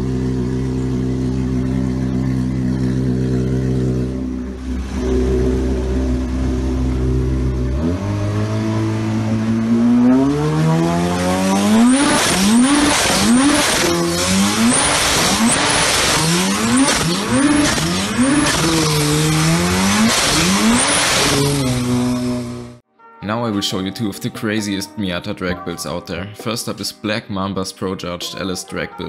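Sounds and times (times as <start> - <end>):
jet ski engine revving: 0.0 - 22.8.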